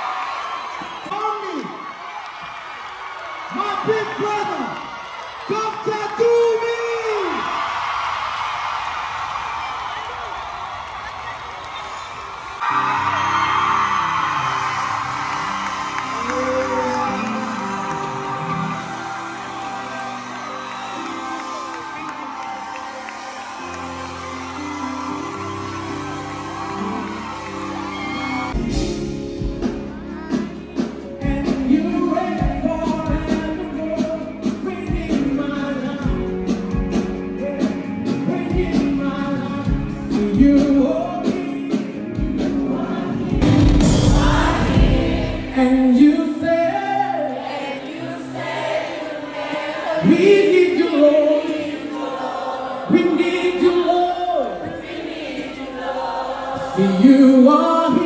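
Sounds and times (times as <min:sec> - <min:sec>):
gospel singing over a band: 0:30.2 - 0:58.0.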